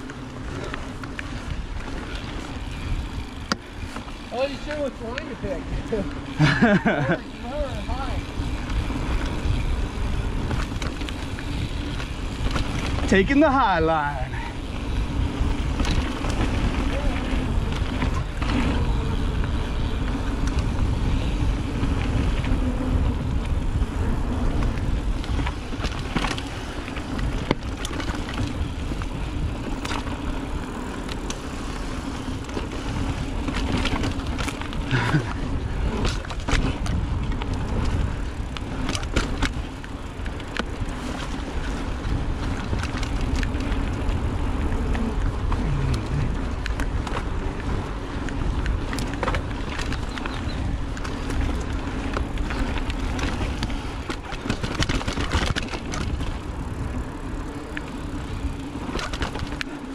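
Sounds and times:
bike rattling and knocking: 0:00.0 - 0:59.9
bike tyres on dirt trail: 0:00.0 - 0:59.9
wind rumble on microphone: 0:00.0 - 0:59.9.

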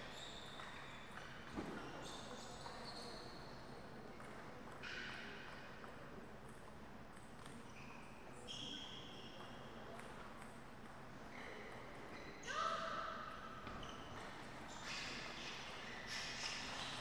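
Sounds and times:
shoes squeaking on floor: 0:00.0 - 0:03.4, 0:13.6 - 0:17.0.

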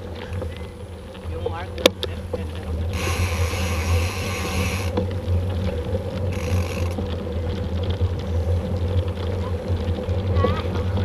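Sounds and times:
wind and tyres rumbling: 0:00.0 - 0:11.0
high buzzing hiss: 0:02.2 - 0:05.0, 0:06.3 - 0:07.0.

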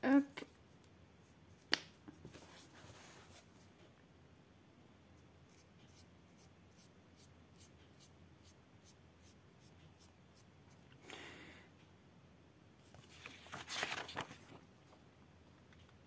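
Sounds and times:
marker scratching on paper: 0:05.5 - 0:10.4.

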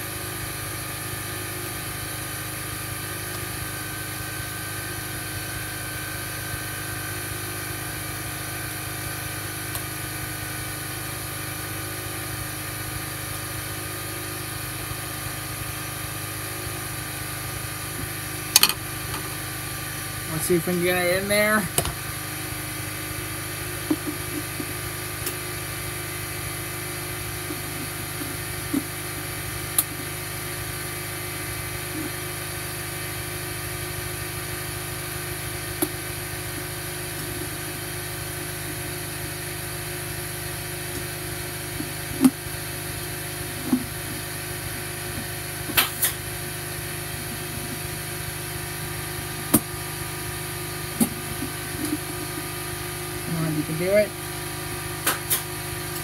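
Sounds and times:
steady background hum: 0:17.9 - 0:30.2, 0:35.7 - 0:56.0.

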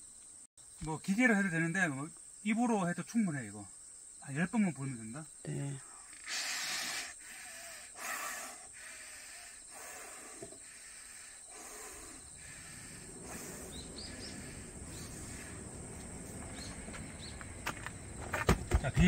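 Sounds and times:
man blowing breathy puffs: 0:05.9 - 0:16.7
bird chirps: 0:11.9 - 0:18.2.

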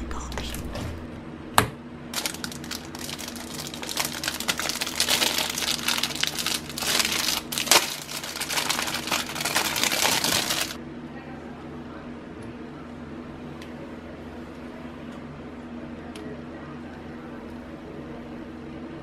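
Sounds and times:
plastic packet crinkling: 0:02.1 - 0:10.8.

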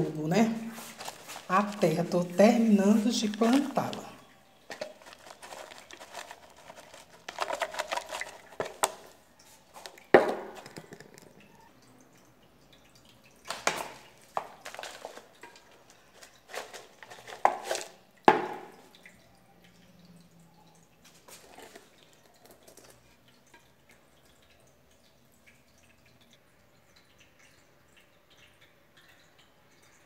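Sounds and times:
soil scraping and rustling: 0:00.7 - 0:02.1, 0:04.7 - 0:09.0
sharp knocks on pot: 0:18.3 - 0:18.8.

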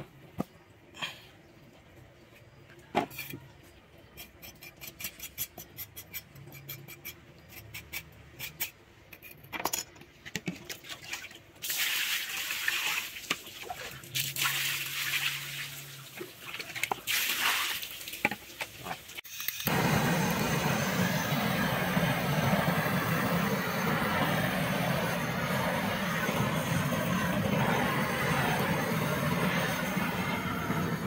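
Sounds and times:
water pouring and splashing: 0:10.5 - 0:19.6.

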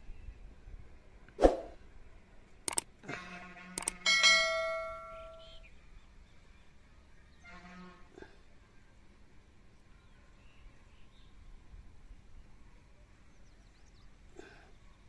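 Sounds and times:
mouse clicks: 0:02.7 - 0:02.9, 0:03.8 - 0:04.0
notification bell chime: 0:04.1 - 0:05.5.

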